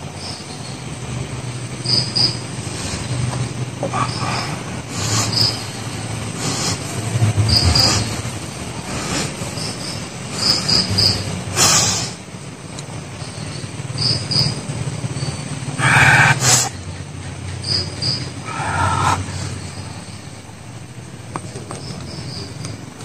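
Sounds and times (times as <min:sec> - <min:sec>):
low wavering drone: 0:00.0 - 0:11.5, 0:17.7 - 0:23.0
crickets chirping: 0:00.0 - 0:23.0.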